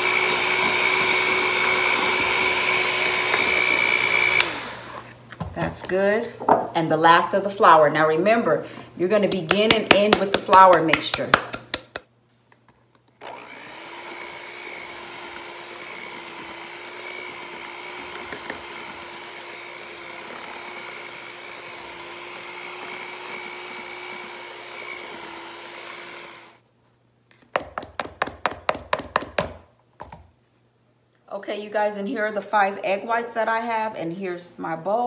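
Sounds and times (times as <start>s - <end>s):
electric hand mixer humming: 0.0s - 5.2s, 13.2s - 26.6s.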